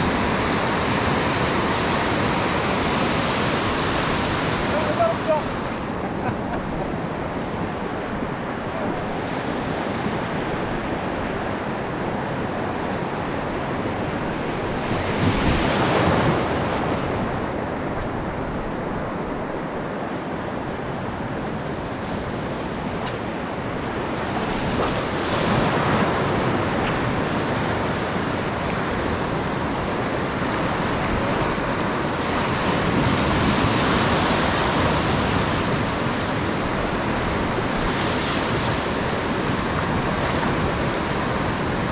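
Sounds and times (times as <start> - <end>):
ocean surf breaking: 0.0 - 41.9.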